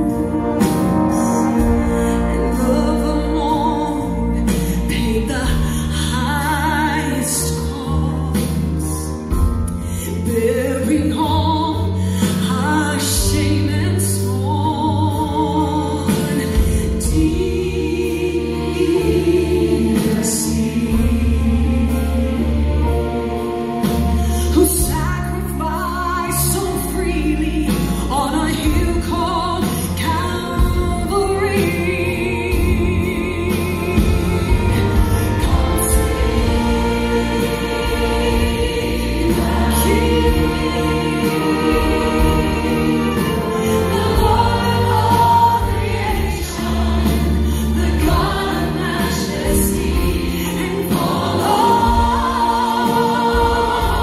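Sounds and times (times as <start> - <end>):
instrumental accompaniment: 0.0 - 54.0
sustained bass notes: 0.0 - 54.0
choir singing: 15.1 - 24.7, 29.6 - 54.0.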